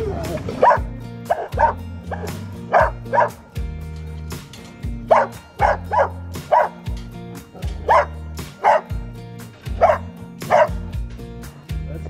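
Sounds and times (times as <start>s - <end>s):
background music with bass line: 0.0s - 12.0s
dog barking: 0.6s - 3.4s, 5.1s - 6.9s, 7.6s - 9.0s, 9.8s - 10.9s.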